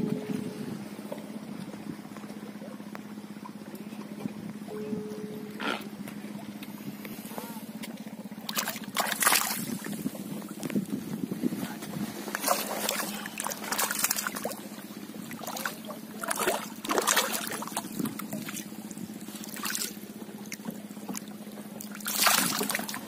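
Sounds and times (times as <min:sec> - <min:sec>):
steady low hum: 0:00.0 - 0:23.0
fish thrashing in water: 0:08.3 - 0:10.9, 0:11.9 - 0:23.0.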